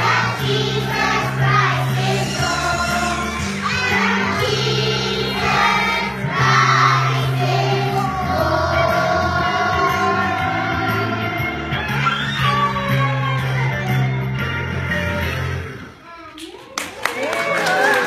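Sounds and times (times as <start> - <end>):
children singing: 0.0 - 12.3.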